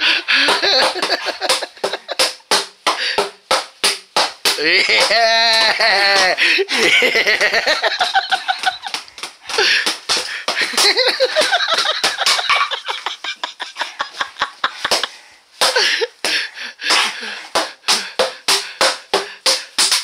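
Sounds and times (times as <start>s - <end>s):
people laughing: 0.0s - 2.2s, 4.6s - 9.0s, 10.6s - 15.0s
plastic bottles whacking: 0.0s - 13.2s, 14.1s - 20.0s
people shouting: 4.6s - 6.6s.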